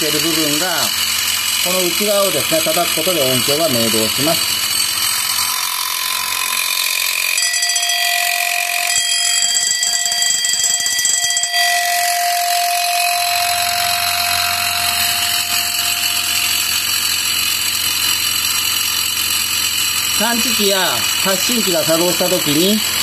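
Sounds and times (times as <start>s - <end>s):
alarm bell motor buzzing rattle: 0.0s - 23.0s
clear ringing tone: 6.4s - 18.2s.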